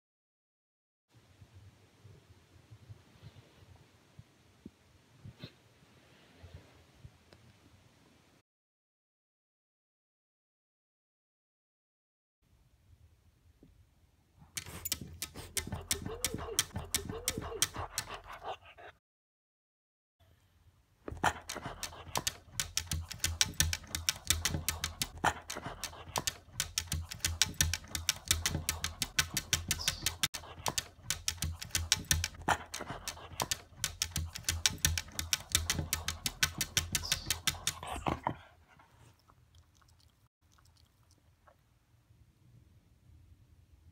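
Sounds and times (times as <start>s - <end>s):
dog teeth clicking on glass: 14.6s - 18.3s, 21.2s - 38.0s.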